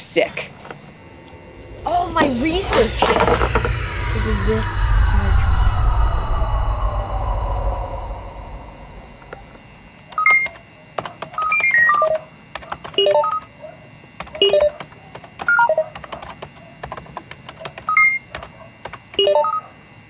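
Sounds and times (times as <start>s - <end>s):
computer keyboard clicking: 10.1s - 13.5s, 14.2s - 19.3s.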